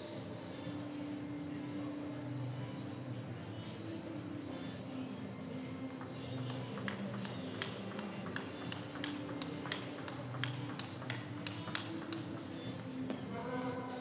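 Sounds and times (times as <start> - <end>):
table tennis ball clicking: 5.9 - 13.1.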